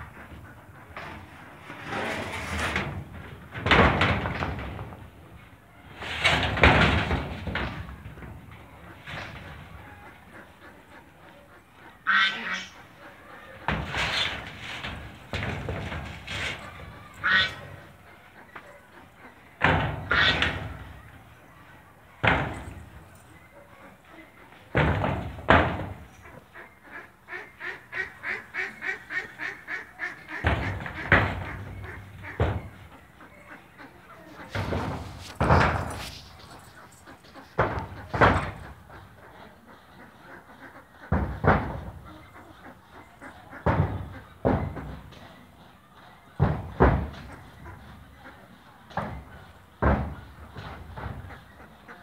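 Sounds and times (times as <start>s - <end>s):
heavy bangs: 0.0s - 10.0s, 13.6s - 18.0s, 28.2s - 39.2s
goats butting heads: 0.0s - 11.3s, 12.7s - 21.3s, 28.2s - 39.3s, 40.9s - 42.3s
duck-like quacks: 8.8s - 13.8s, 17.0s - 21.0s, 26.1s - 35.8s, 36.8s - 44.4s.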